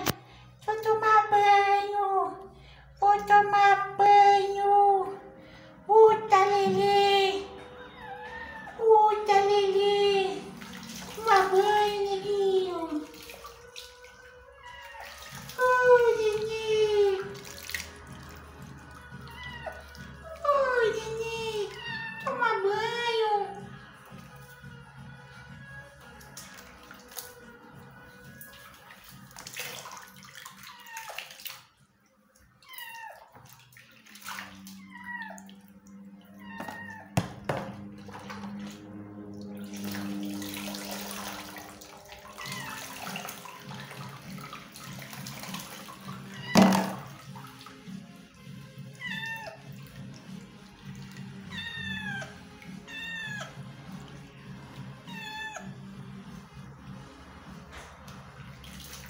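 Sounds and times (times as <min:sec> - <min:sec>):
water sloshing and pouring: 0:06.7 - 0:22.2, 0:23.6 - 0:59.0
cat meowing: 0:07.6 - 0:08.9, 0:14.5 - 0:15.6, 0:19.0 - 0:20.4, 0:21.5 - 0:22.4, 0:30.5 - 0:31.2, 0:32.6 - 0:33.4, 0:34.6 - 0:37.2, 0:42.2 - 0:43.2, 0:49.0 - 0:49.6, 0:51.4 - 0:53.6, 0:55.0 - 0:55.8.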